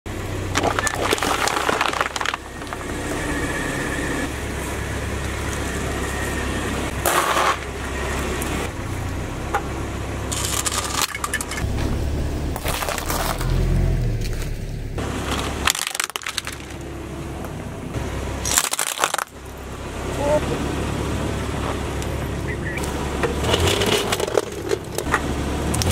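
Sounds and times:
car engine running: 0.1s - 25.9s
plastic bottles bursting: 0.4s - 2.8s, 15.3s - 16.8s
eggs cracking under tyre: 0.5s - 2.9s, 15.3s - 16.9s, 18.4s - 19.6s
tyre crunching object: 0.5s - 2.9s, 10.3s - 16.8s.

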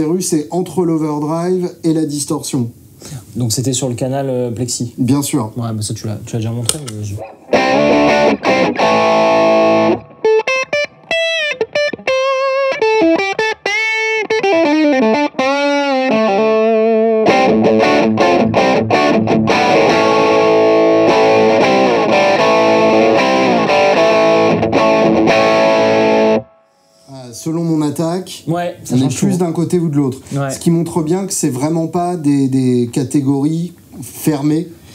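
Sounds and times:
distorted electric guitar: 7.2s - 26.6s.

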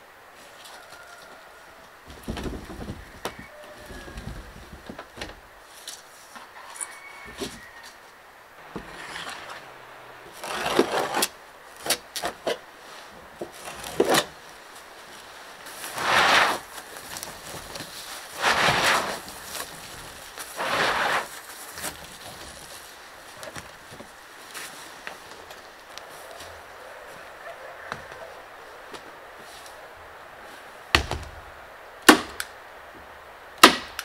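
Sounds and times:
membrane sliding over floorboards: 8.6s - 11.3s, 15.1s - 26.5s.

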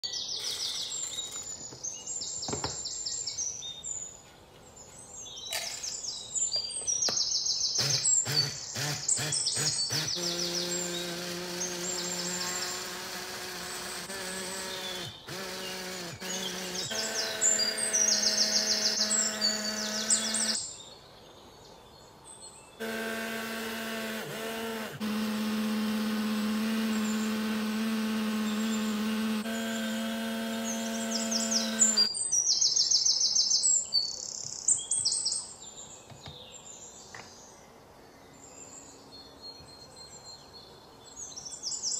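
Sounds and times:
bird chirping trills: 0.0s - 24.0s, 26.1s - 37.6s
hand blender motor grinding: 7.8s - 20.6s, 22.8s - 32.1s.

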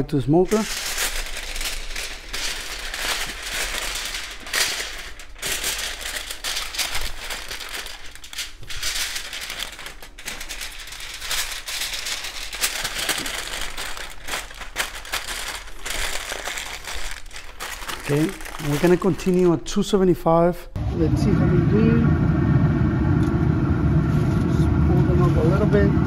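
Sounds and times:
aluminium foil crinkling: 0.0s - 20.0s.

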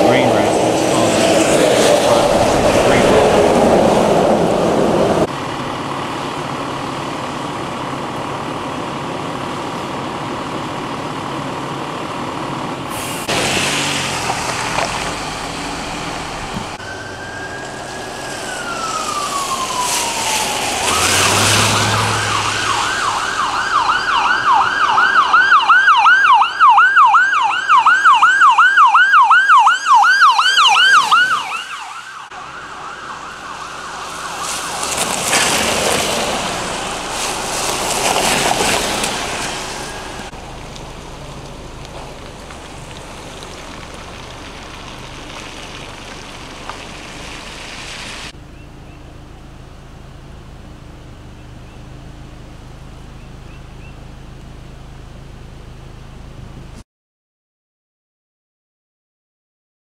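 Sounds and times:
emergency vehicle siren: 0.0s - 12.3s, 14.1s - 48.0s.

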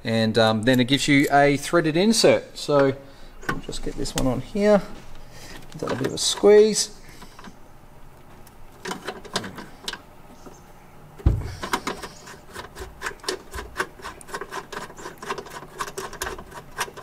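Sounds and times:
dull thump: 11.2s - 11.7s
riv-nut tool clicking: 11.6s - 17.0s.

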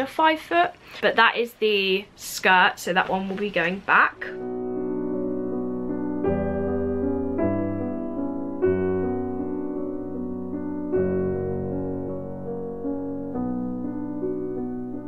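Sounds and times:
soft piano chords: 3.9s - 15.0s.

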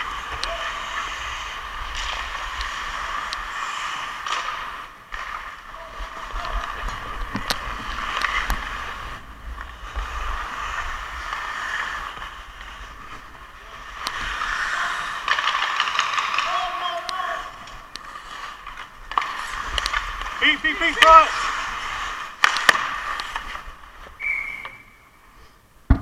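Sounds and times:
hockey sticks and puck clicking: 0.0s - 25.0s
skate blades scraping on ice: 0.0s - 25.4s.

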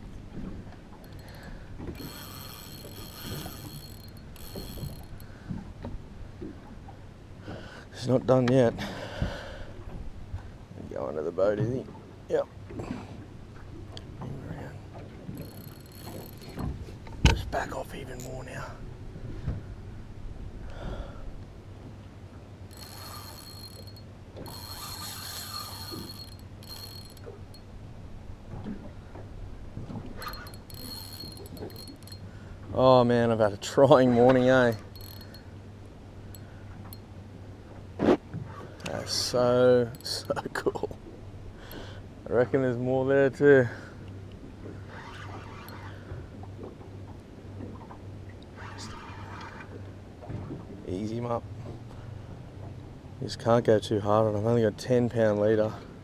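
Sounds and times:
fishing reel drag buzzing: 1.0s - 5.5s, 15.3s - 17.0s, 22.7s - 27.7s, 30.2s - 32.4s, 34.2s - 35.6s, 39.0s - 40.4s, 44.8s - 46.2s.

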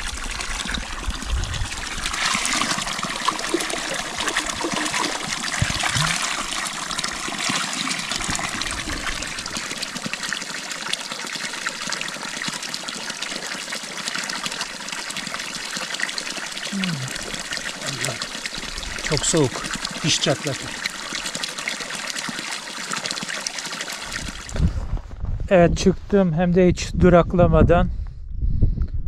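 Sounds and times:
water splashing onto stones: 1.8s - 11.8s.

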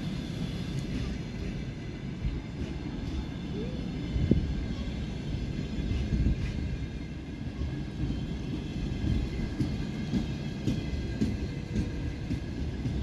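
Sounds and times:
wheels rumbling on rail: 0.0s - 13.0s
train coaches knocking: 5.9s - 13.0s.

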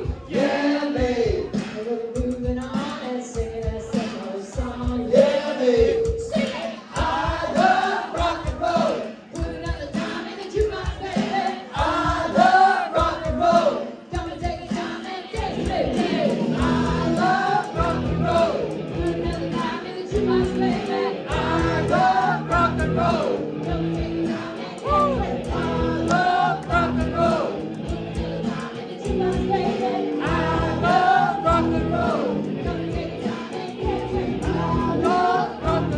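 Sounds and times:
crowd noise: 0.0s - 35.9s
woman singing: 1.0s - 7.7s, 9.3s - 18.0s, 19.0s - 22.7s, 28.4s - 35.9s
live rock band playing: 15.6s - 35.9s.

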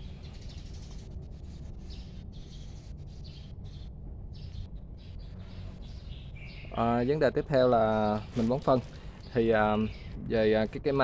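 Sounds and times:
birds chirping: 0.0s - 11.0s
steady low background noise: 0.0s - 11.0s.

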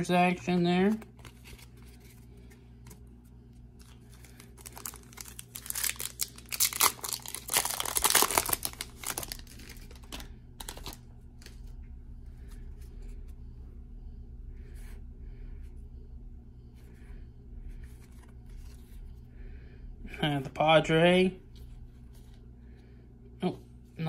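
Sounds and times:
foil wrapper tearing and crinkling: 3.8s - 11.6s.

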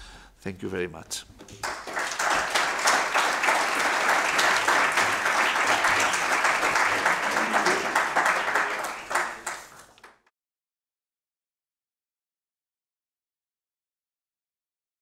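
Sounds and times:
audience applauding: 1.5s - 10.3s.

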